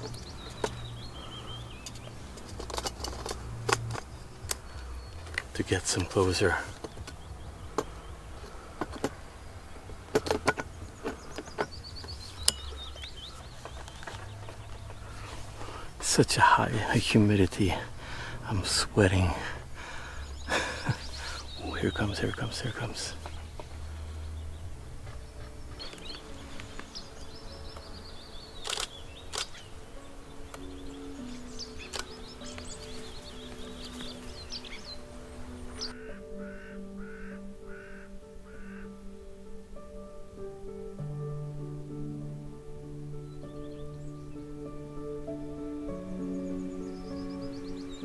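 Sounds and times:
bird singing: 0.0s - 48.0s
camera gear clicking: 28.6s - 29.6s.

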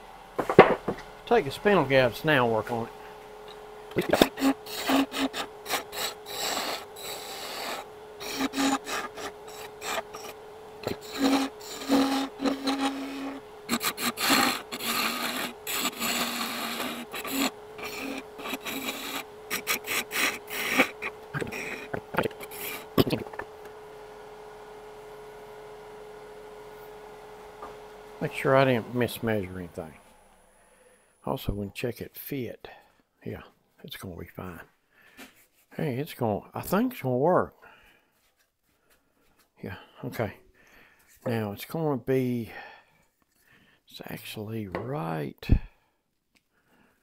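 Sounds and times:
lathe motor hum: 0.0s - 30.7s
gouge scraping spinning wood: 0.4s - 23.6s, 24.2s - 29.8s.

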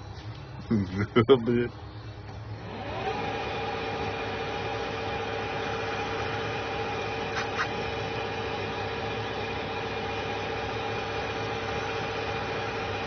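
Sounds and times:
metal lathe whining: 2.6s - 13.0s.

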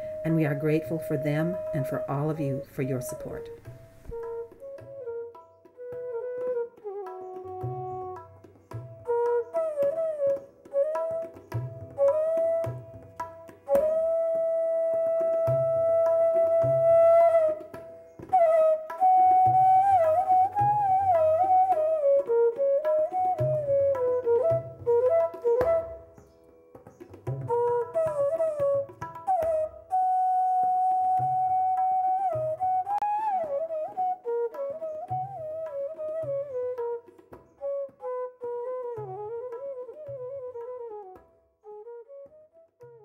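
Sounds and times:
gliding melodic line: 0.0s - 3.6s.

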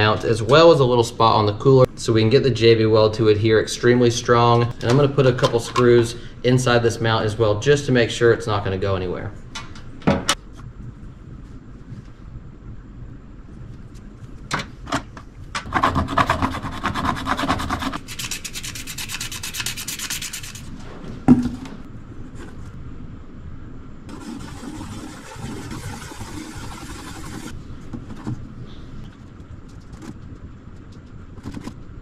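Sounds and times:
sandpaper rubbing plastic: 15.7s - 20.9s, 24.1s - 27.6s.

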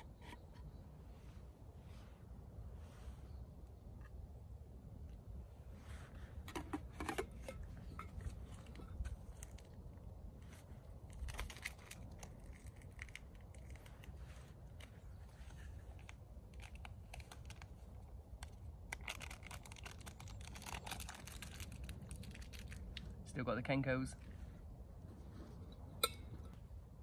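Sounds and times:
small clicks and rustling: 6.5s - 9.8s, 10.4s - 23.2s.

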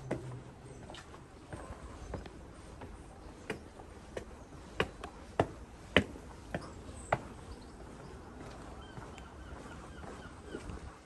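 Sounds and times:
footsteps of person walking: 0.0s - 11.0s.

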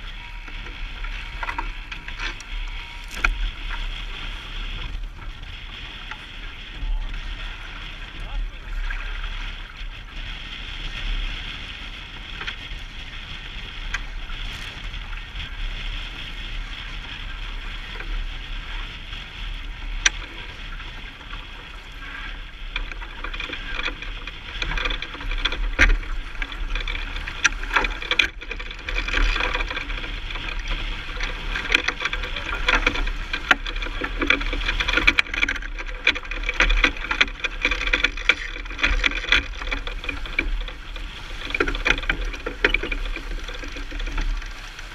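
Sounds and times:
water and wind rushing: 0.0s - 44.9s
sharp clicks and knocks: 1.4s - 3.5s, 22.8s - 44.8s.

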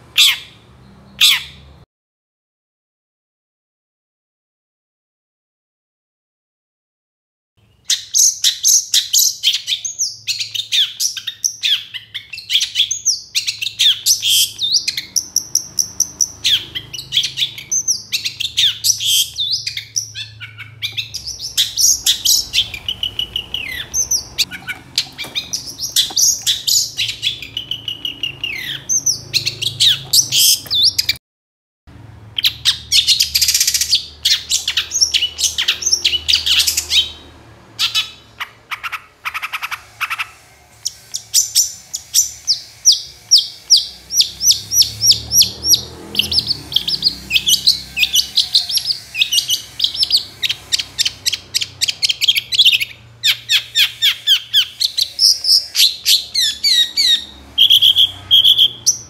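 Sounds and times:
bird singing harsh chattering notes: 7.7s - 31.2s, 32.4s - 59.0s.

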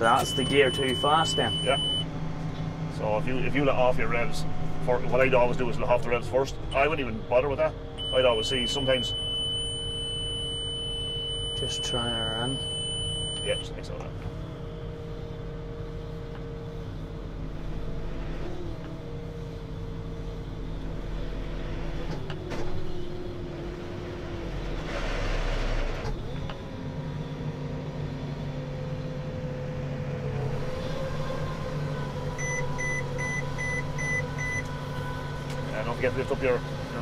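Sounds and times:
short electronic beeps: 0.0s - 2.1s, 6.7s - 7.0s, 8.0s - 13.7s, 32.4s - 34.6s
tractor engine running: 0.0s - 13.4s.

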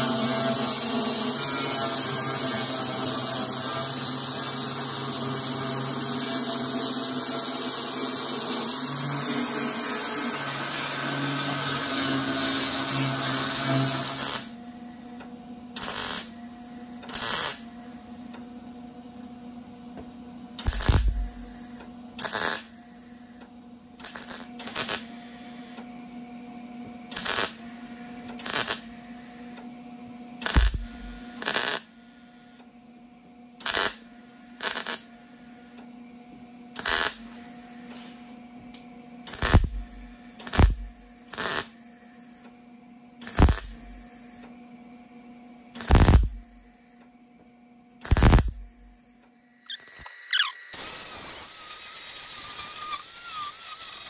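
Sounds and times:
angle grinder grinding metal: 0.0s - 14.5s, 20.7s - 21.6s, 30.4s - 31.8s, 39.3s - 41.6s, 43.2s - 44.0s, 45.8s - 46.5s, 48.0s - 48.9s, 49.7s - 54.0s
steady welder hum: 0.0s - 18.7s, 19.5s - 29.6s, 30.4s - 32.6s, 33.6s - 36.1s, 36.7s - 42.5s, 43.2s - 44.5s, 45.8s - 47.0s, 48.0s - 54.0s
crackling welding tacks: 13.7s - 14.5s, 15.8s - 16.3s, 17.1s - 17.6s, 20.6s - 21.6s, 22.2s - 22.7s, 24.0s - 25.1s, 27.1s - 27.6s, 28.4s - 28.9s, 30.4s - 31.9s, 33.6s - 34.0s, 34.6s - 35.1s, 36.8s - 37.3s, 39.3s - 41.7s, 43.2s - 44.1s, 45.8s - 46.6s, 48.0s - 49.0s, 49.7s - 54.0s.

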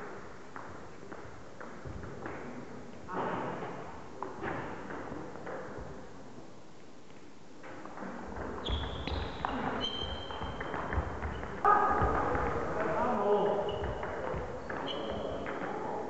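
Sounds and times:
shoes squeaking on wooden floor: 8.4s - 15.5s.

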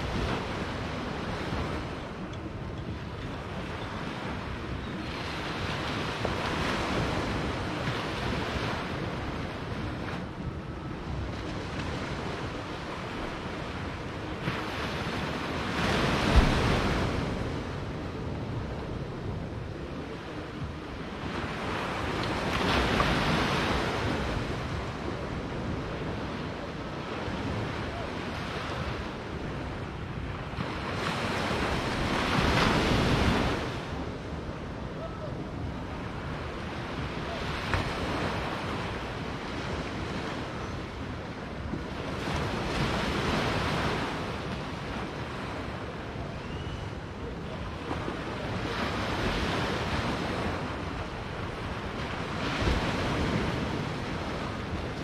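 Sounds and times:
small waves breaking on beach: 20.0s - 55.0s.

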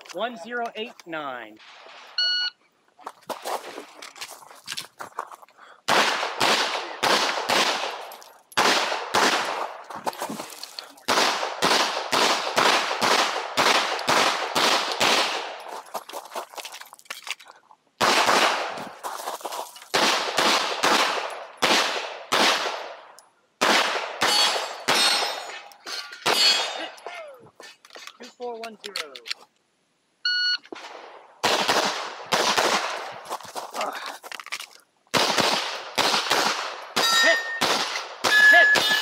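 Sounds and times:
pistol shots: 5.9s - 9.8s, 11.0s - 15.6s, 18.0s - 18.9s, 19.9s - 25.6s, 30.8s - 33.2s, 35.1s - 39.0s.

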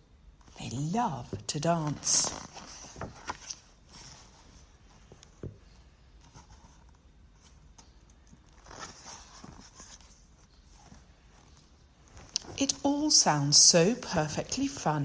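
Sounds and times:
low room noise: 0.0s - 15.0s
book pages rustling: 1.5s - 13.0s.

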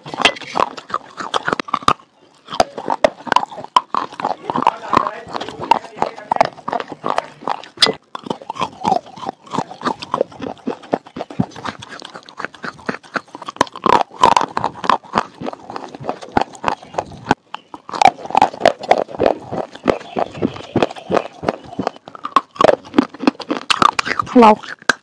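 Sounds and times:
crunchy chewing: 0.0s - 25.0s
wet mouth smacks: 6.4s - 25.0s.

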